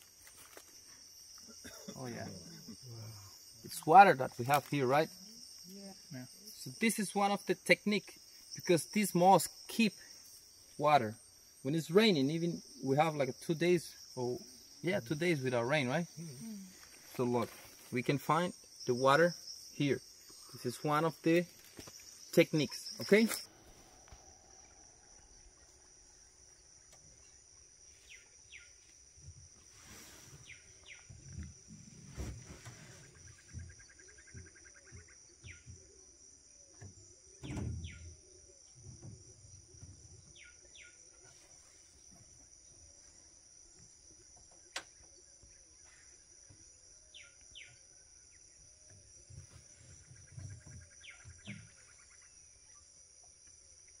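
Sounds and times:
high insect drone: 0.0 - 54.0
birds chirping: 11.8 - 28.8.

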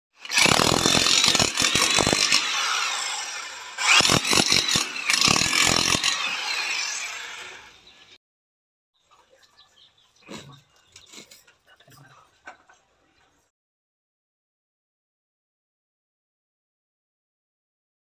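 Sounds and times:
demolition hammer chiselling wall: 0.2 - 7.0.

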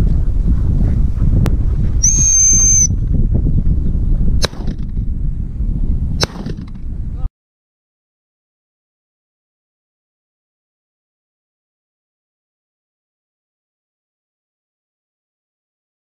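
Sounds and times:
wind buffeting microphone: 0.0 - 7.3
dog whistle blast: 2.0 - 2.9
shotgun shots: 4.4 - 5.0, 6.2 - 6.8.

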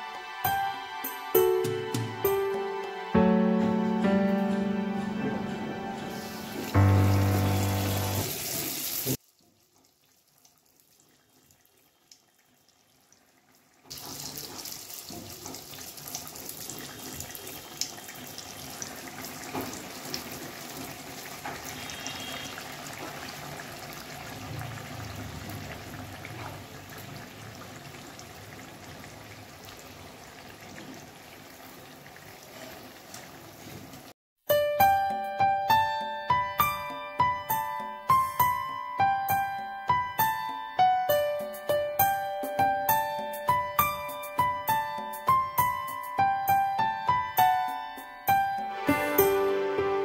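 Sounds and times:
short bit of music: 0.0 - 8.4, 48.7 - 50.0
deep-frying oil sizzling: 4.8 - 34.2.

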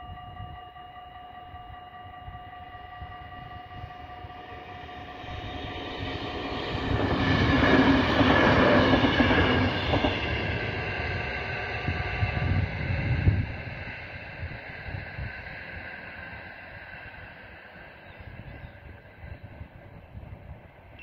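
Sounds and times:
level crossing warning bells: 0.0 - 8.9
electric train passing: 0.0 - 21.0.

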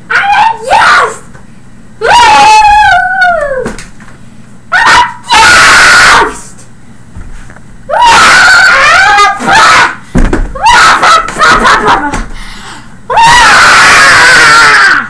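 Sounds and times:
person screaming: 7.9 - 10.0, 13.1 - 15.0.

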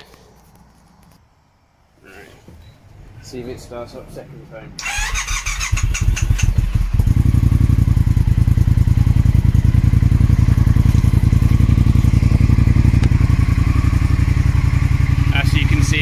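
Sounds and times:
electric starter cranking: 4.8 - 7.0
motorcycle engine idling: 4.8 - 16.0.

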